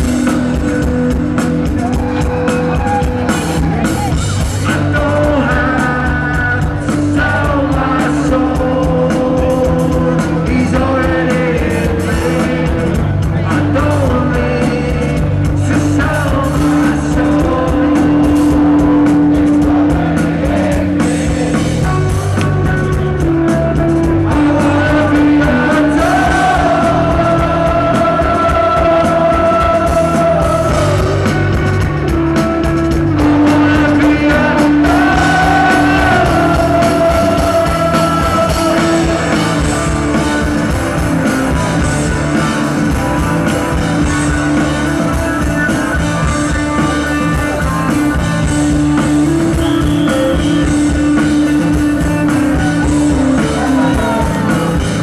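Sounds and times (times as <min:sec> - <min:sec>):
electric guitar: 0:00.0 - 0:55.0
live rock band: 0:00.0 - 0:55.0
man singing into microphone: 0:04.5 - 0:18.7, 0:24.2 - 0:31.5, 0:33.2 - 0:39.7, 0:52.3 - 0:54.8.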